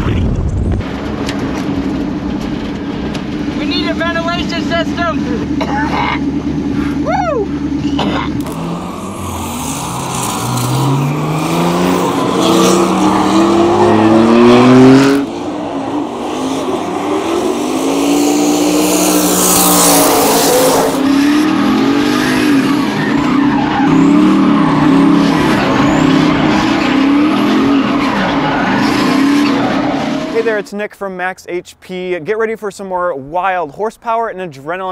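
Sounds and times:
car engine revving: 0.0 - 30.6
tyres squealing and skidding: 6.2 - 30.5.

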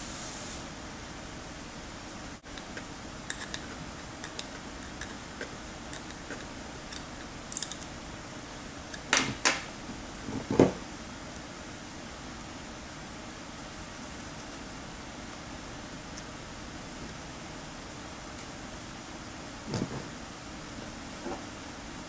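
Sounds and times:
steady low hiss: 0.0 - 22.0
metallic clicks and clinks: 6.9 - 7.9
knocks on workbench: 10.5 - 10.8.

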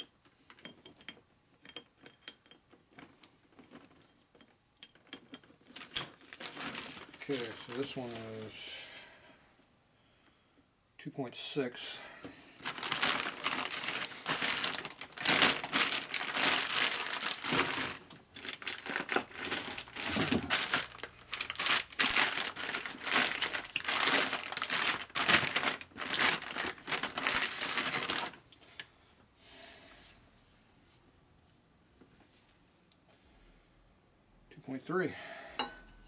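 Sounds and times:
plastic bag and paper crinkling: 5.6 - 8.6, 12.6 - 28.4.

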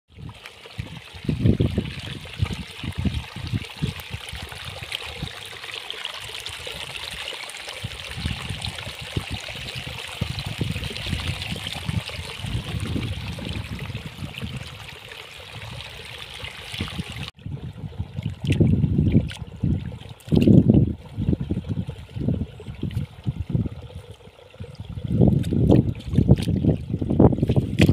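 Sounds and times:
muddy water trickling: 0.1 - 27.9
hands sloshing in muddy puddle: 18.1 - 20.7, 25.2 - 27.9.

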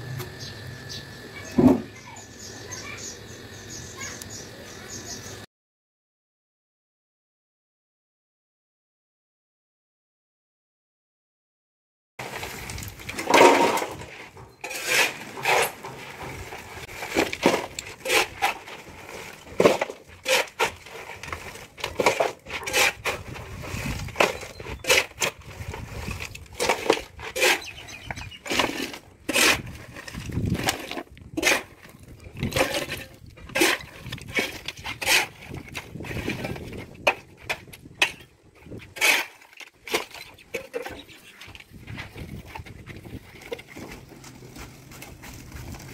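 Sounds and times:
rubble clattering in metal wheelbarrow: 12.2 - 45.9
shovel scraping concrete rubble: 12.2 - 45.9.

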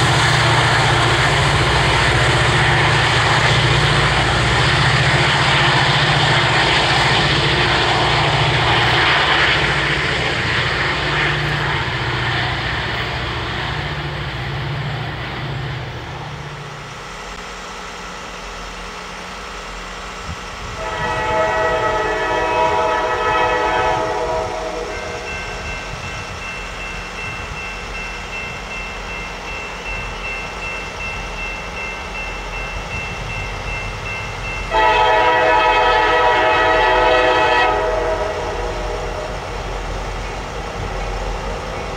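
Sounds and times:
low diesel drone: 0.0 - 41.9
train rumbling: 0.0 - 41.9
locomotive air horn: 20.6 - 25.4, 34.7 - 39.6.

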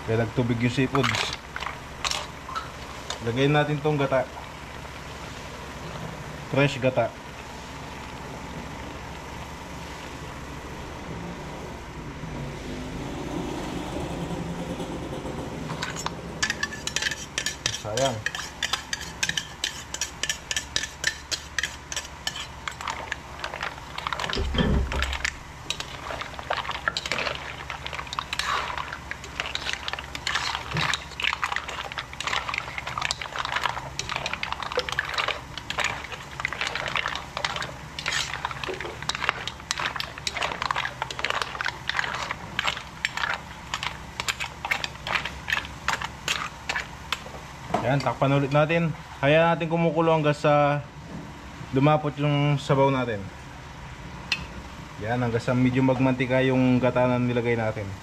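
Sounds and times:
utensil scraping a pot: 15.3 - 24.4, 25.7 - 47.0
low thump: 24.4 - 25.1.

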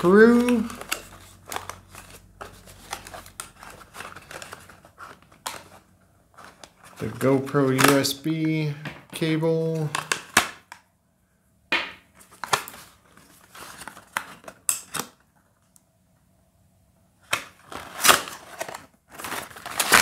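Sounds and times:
cardboard scraping and rustling: 0.0 - 8.0, 12.2 - 14.6, 17.6 - 20.0.

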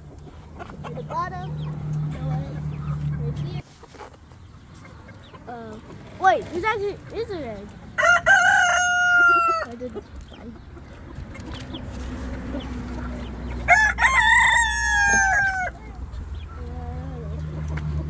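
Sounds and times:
rooster crowing: 8.0 - 9.7, 13.7 - 15.8.

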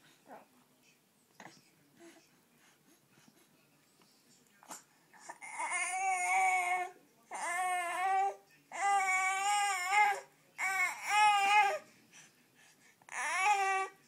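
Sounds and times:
baby whining cries: 5.2 - 11.8, 13.1 - 14.0.

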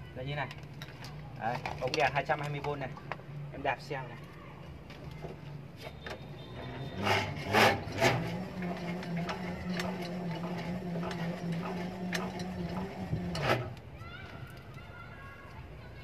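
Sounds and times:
pedal and drivetrain knocks: 4.9 - 13.8
electric motor hum: 6.6 - 13.9.

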